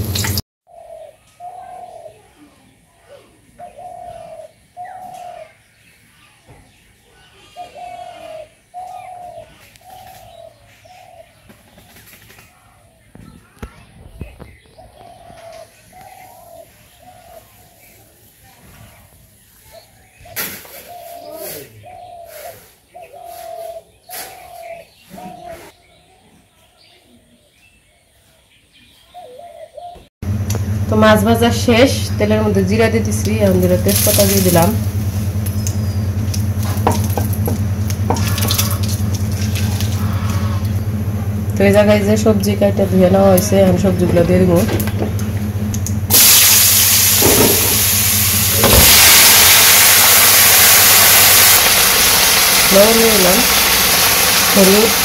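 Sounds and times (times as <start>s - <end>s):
bird calling held notes: 29.0s - 48.6s
vegetables sizzling in hot oil: 33.8s - 39.3s, 46.1s - 55.0s.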